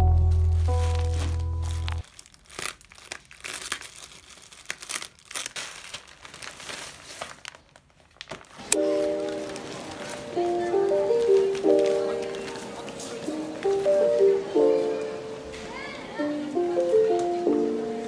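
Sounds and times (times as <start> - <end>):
background music: 0.0 - 2.0, 8.7 - 18.0
plastic mailer bag crinkling: 0.4 - 13.8.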